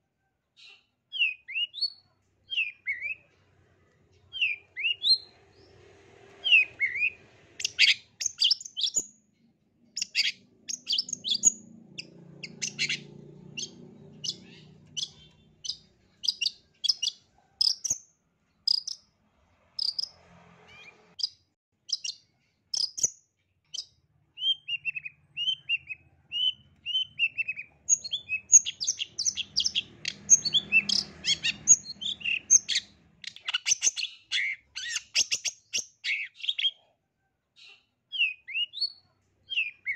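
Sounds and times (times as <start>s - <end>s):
bird chattering song: 0.6s - 3.3s, 4.2s - 5.8s, 6.4s - 9.2s, 9.9s - 18.0s, 18.6s - 19.1s, 19.8s - 36.8s, 37.6s - 39.9s
bird downward-slurred whistles: 6.4s - 9.0s, 23.8s - 32.8s.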